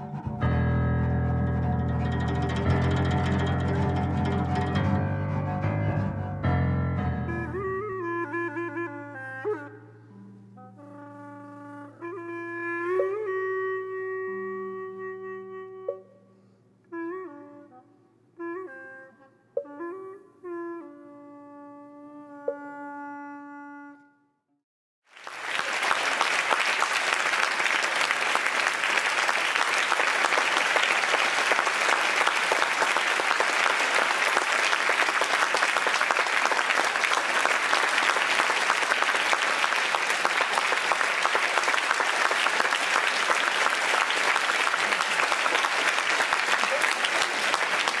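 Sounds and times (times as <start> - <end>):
audience applause: 25.1 - 48.0.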